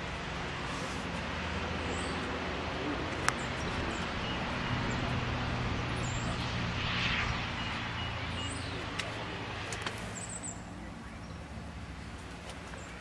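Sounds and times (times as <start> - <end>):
brief hiss: 0.6 - 1.1.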